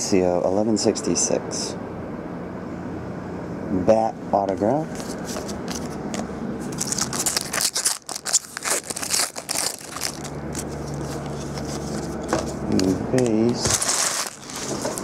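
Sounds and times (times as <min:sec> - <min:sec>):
foil wrapper crinkling and tearing: 0:06.7 - 0:12.2, 0:13.6 - 0:15.0.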